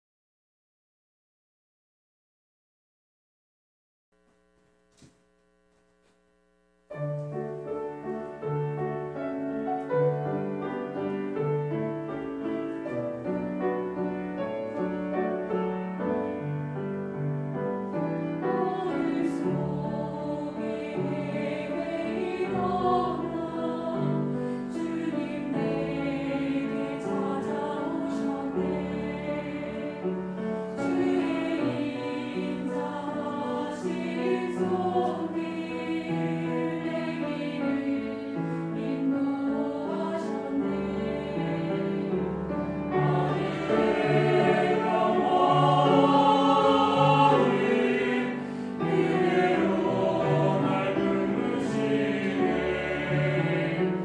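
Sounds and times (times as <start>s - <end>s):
piano and strings: 6.9s - 54.0s
church choir singing: 7.3s - 54.0s.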